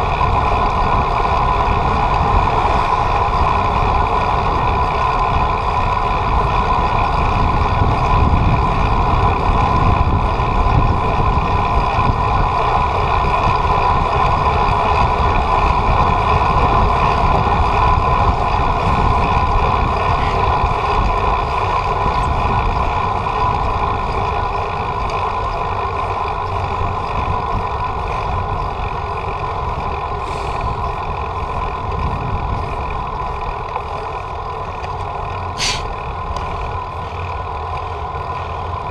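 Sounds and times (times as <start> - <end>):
bicycle road noise: 0.0 - 38.9
constant whine: 0.0 - 38.9
wind rumbling on microphone: 0.0 - 38.9.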